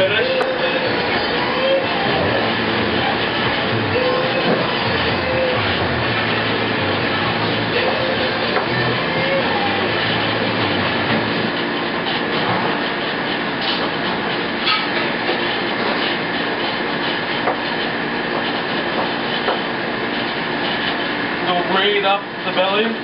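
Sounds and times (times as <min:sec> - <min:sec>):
mechanical rushing noise: 0:00.0 - 0:15.3.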